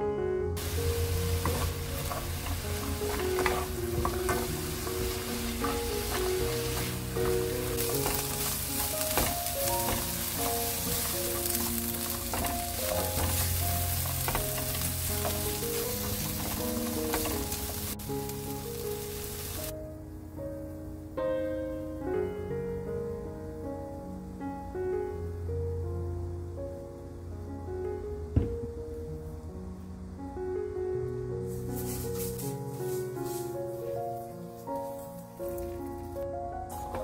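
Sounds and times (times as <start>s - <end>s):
spatula scraping and tapping pan: 0.6s - 18.0s
food sizzling in oil: 0.6s - 19.7s.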